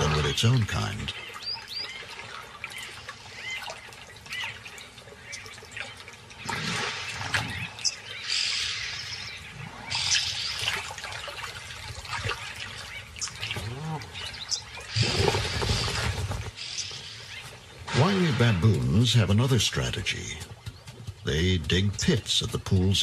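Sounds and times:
water sloshing and splashing: 0:00.0 - 0:23.0.

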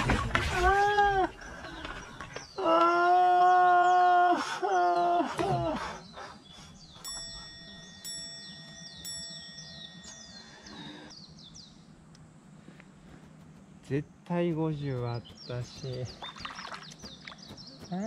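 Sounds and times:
birds chirping faintly: 0:00.0 - 0:18.0
ringing chime strikes: 0:07.0 - 0:11.1.

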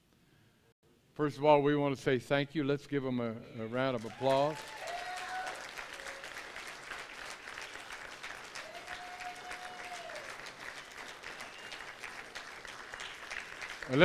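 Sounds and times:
crowd applauding: 0:03.7 - 0:14.0.

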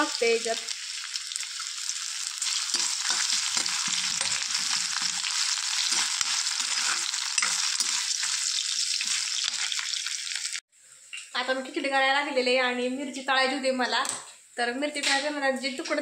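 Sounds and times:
potatoes sizzling in hot oil: 0:00.0 - 0:12.4
metal spatula scraping pan: 0:02.4 - 0:09.8.

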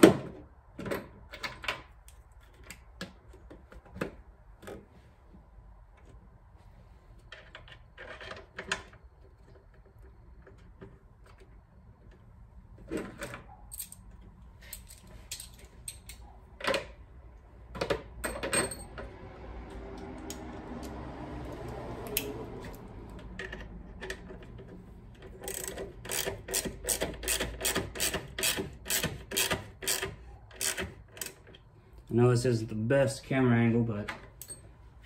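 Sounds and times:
quick regular clicks of screws: 0:23.1 - 0:31.7.

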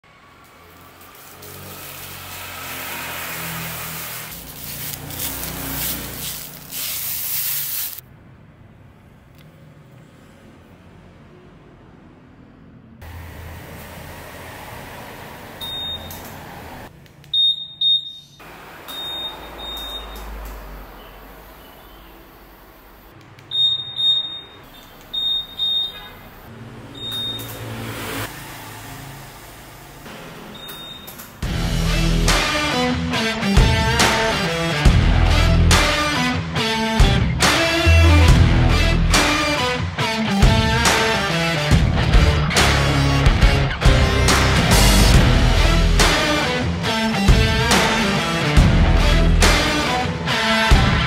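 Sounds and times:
hiss: 0:00.8 - 0:08.0
plastic film peeling: 0:03.4 - 0:08.0
scooter buzzer beeps: 0:15.6 - 0:16.2, 0:17.3 - 0:20.4, 0:23.5 - 0:26.2, 0:27.0 - 0:27.6, 0:30.5 - 0:31.1.

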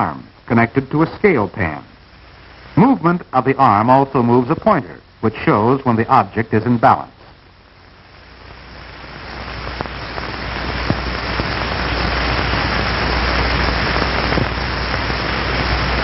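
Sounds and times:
electric fan blowing air: 0:08.2 - 0:16.0.

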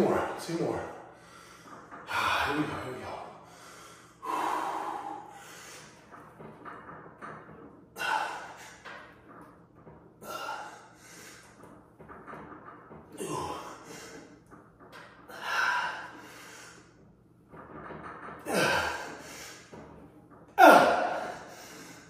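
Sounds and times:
man breathing hard with effort: 0:01.1 - 0:02.4, 0:03.4 - 0:06.2, 0:15.3 - 0:17.0.

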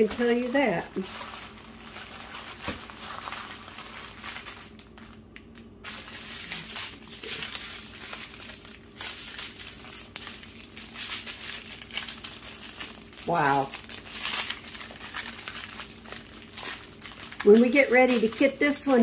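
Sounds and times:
plastic bags crinkling: 0:00.0 - 0:19.0.

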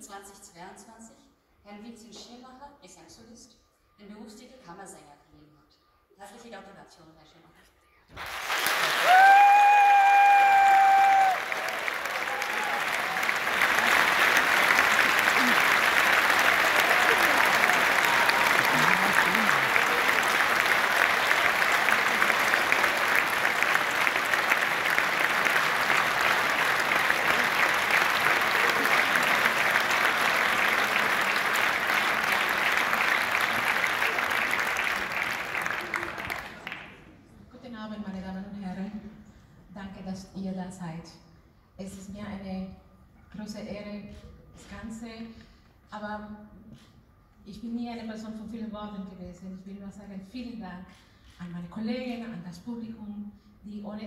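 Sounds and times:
audience applauding: 0:08.2 - 0:37.0.

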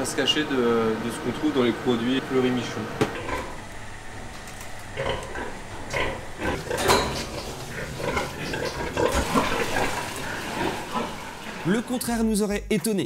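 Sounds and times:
pigs grunting and squealing: 0:03.1 - 0:03.7, 0:04.8 - 0:12.0.

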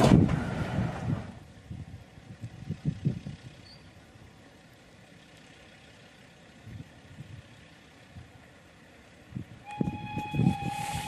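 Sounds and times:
steam locomotive exhaust beats: 0:06.5 - 0:11.0
steam whistle: 0:09.6 - 0:11.0.

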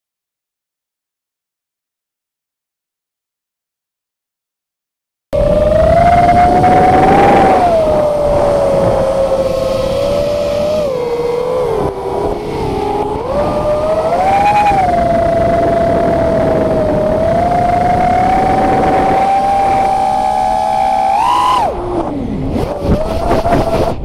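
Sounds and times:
drone motors whining: 0:05.4 - 0:24.0.

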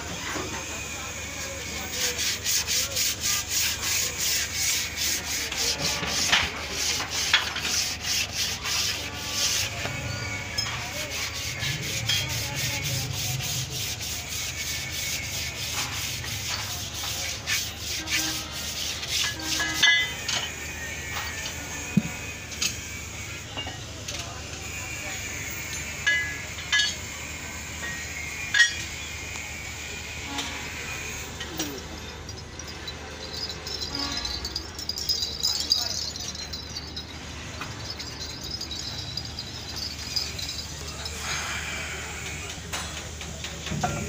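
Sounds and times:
sandpaper scraping metal drum: 0:00.0 - 0:22.2.

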